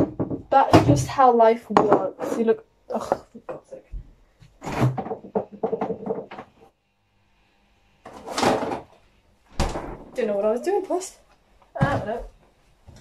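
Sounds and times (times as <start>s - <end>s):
cupboard doors knocking and rattling: 0.0s - 1.1s, 4.6s - 6.6s.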